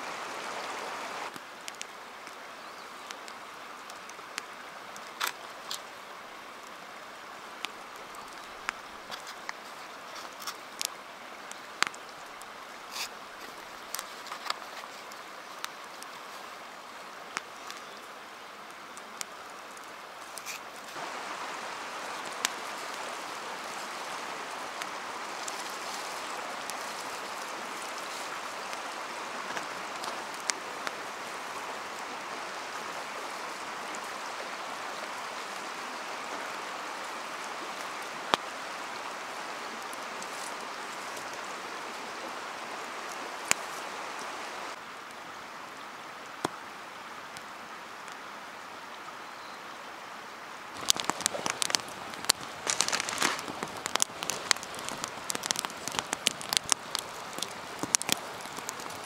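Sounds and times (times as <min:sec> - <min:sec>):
faint hiss: 0:00.0 - 0:59.0
steady watery hiss: 0:00.0 - 0:59.0
sharp clicks and snaps: 0:50.8 - 0:59.0.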